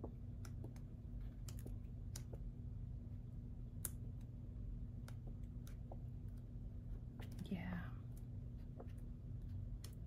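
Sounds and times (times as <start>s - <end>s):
sticker books clicking and tapping: 0.0s - 2.6s, 3.7s - 6.5s
low steady hum: 0.0s - 10.0s.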